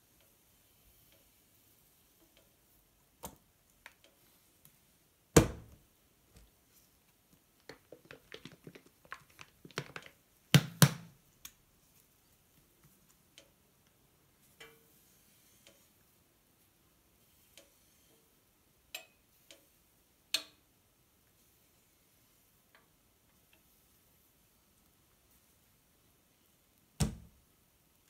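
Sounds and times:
small clicks and taps: 0:07.1 - 0:11.6.

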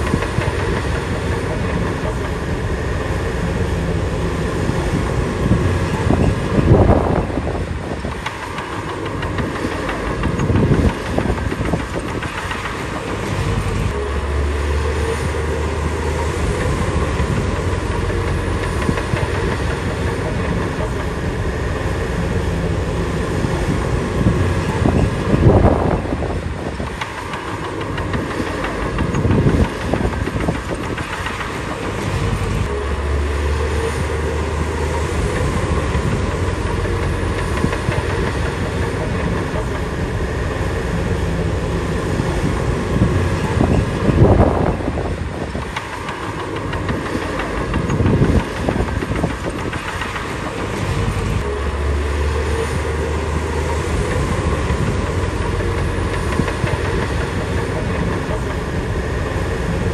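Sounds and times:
bulldozer diesel engine running: 0:00.0 - 0:59.9
steel tracks clanking: 0:00.0 - 0:59.9.

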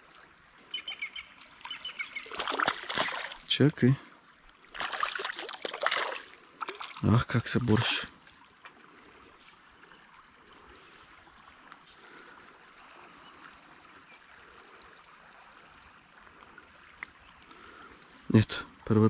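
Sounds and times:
river water rushing: 0:04.7 - 0:08.4.

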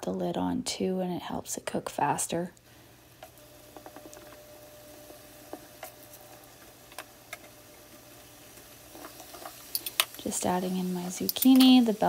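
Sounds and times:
meat sizzling in a pan: 0:02.9 - 0:12.0.

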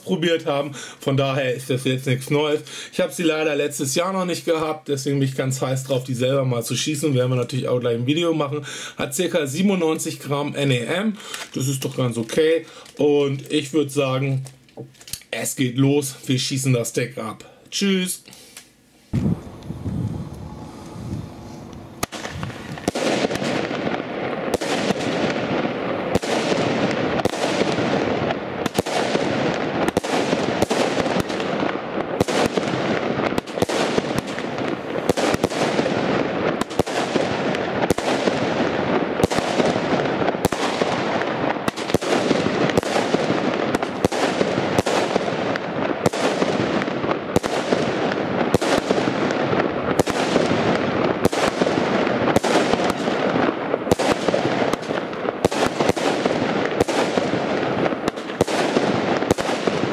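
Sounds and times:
steady rush of noise: 0:18.5 - 0:24.6
fireworks shells bursting: 0:19.1 - 0:59.9.

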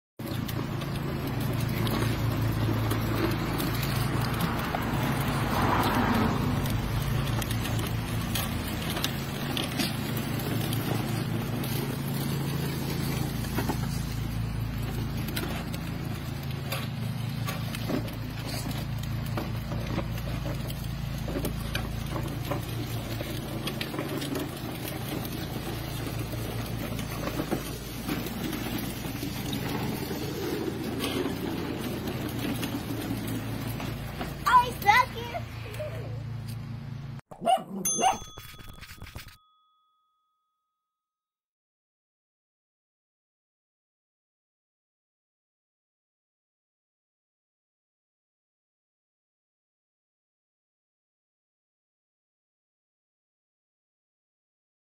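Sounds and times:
plastic wheels rolling on asphalt: 0:00.2 - 0:37.2.

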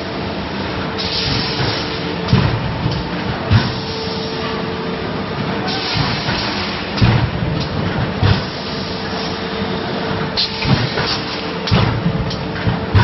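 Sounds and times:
machine humming and hissing: 0:00.0 - 0:13.0
heavy machine thumps: 0:01.2 - 0:03.9, 0:05.9 - 0:08.6, 0:10.4 - 0:13.0.

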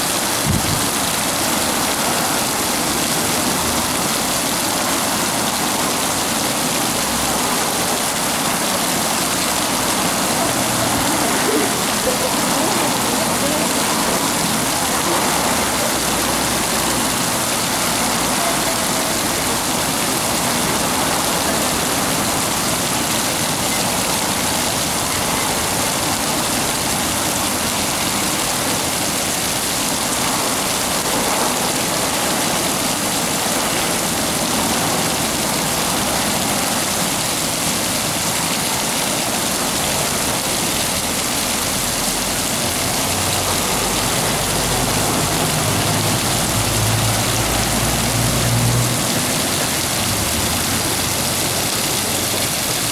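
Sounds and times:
fountain jets splashing on paving: 0:00.0 - 0:52.9.

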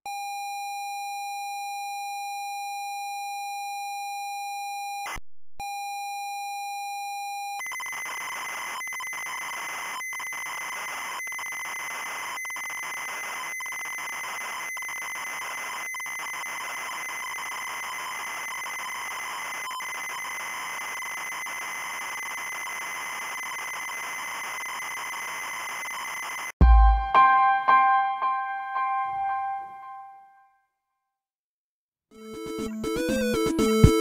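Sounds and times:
noisy data screech: 0:07.6 - 0:26.6
high pilot tone: 0:26.6 - 0:30.4.

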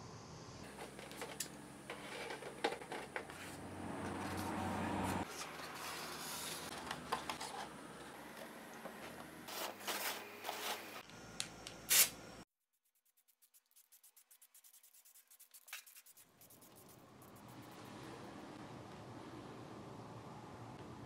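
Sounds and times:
metal sheet scraping on plastic: 0:00.7 - 0:03.6.

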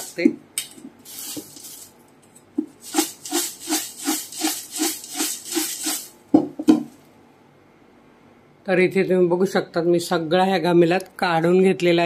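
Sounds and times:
snack mix rattling in steel container: 0:02.8 - 0:06.2.

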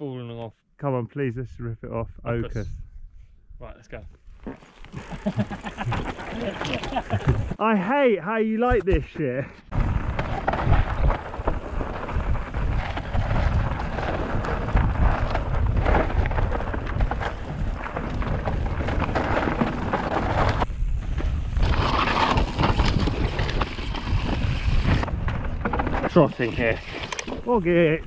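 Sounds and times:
bike clicking and rattling: 0:04.6 - 0:07.6, 0:09.7 - 0:27.5
tyres rumbling over rock: 0:09.7 - 0:27.8.

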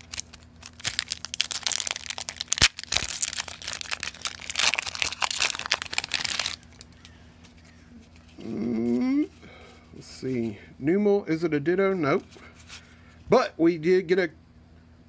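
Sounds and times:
sharp foil crack: 0:00.0 - 0:06.6
foil wrapper crinkling and tearing: 0:00.0 - 0:07.2.

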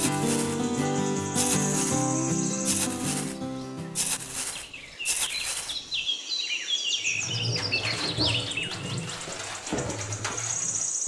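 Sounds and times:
high steady trill: 0:00.0 - 0:05.6
trowel scraping in damp sand: 0:00.0 - 0:06.0
birds chirping: 0:00.0 - 0:09.1.

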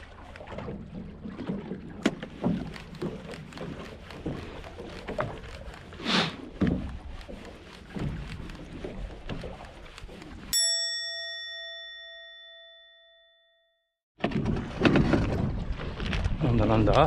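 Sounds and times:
water noise: 0:00.0 - 0:12.8
struck bell ding: 0:10.6 - 0:13.9
rumbling wind: 0:14.2 - 0:17.0.

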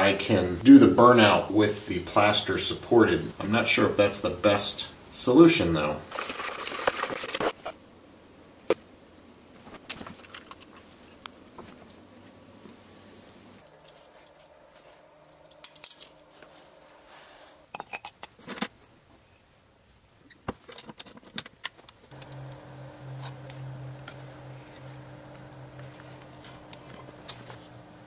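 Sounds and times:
steady low hum: 0:12.0 - 0:17.7, 0:22.1 - 0:28.0
metal tongs clinking: 0:15.4 - 0:16.2.

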